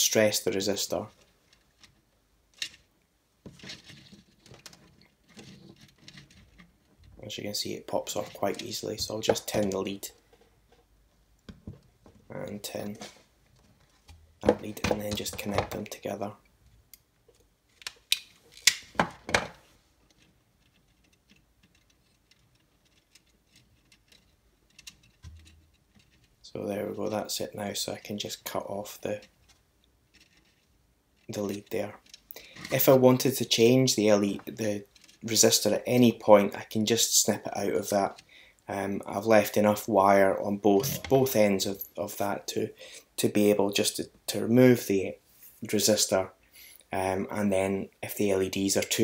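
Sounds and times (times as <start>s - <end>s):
light rustling and scraping: 0.9s - 16.0s, 28.0s - 33.0s, 40.6s - 42.0s
tools clicking and knocking: 16.9s - 26.4s.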